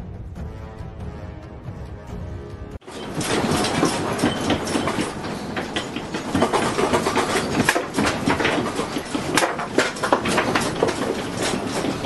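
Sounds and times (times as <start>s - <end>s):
household objects rattling: 2.8s - 12.0s.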